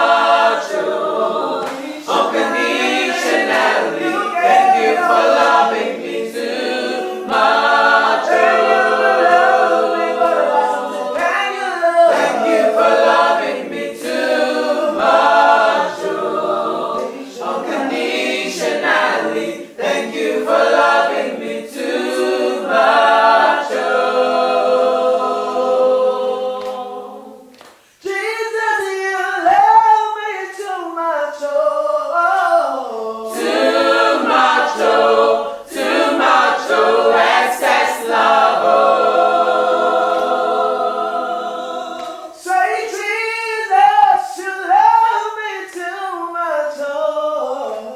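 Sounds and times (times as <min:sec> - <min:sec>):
group singing a cappella: 0:00.0 - 0:47.9
lone voice singing: 0:01.7 - 0:05.9, 0:28.0 - 0:33.4.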